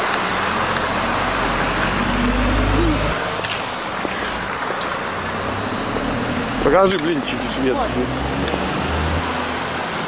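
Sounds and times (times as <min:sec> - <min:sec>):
passing vehicles: 0:00.0 - 0:10.0
low rumble: 0:01.0 - 0:03.4.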